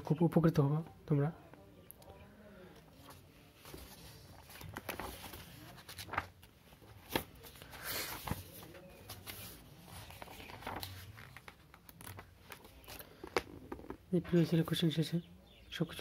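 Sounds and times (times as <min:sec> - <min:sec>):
book pages turning: 0:02.8 - 0:14.1.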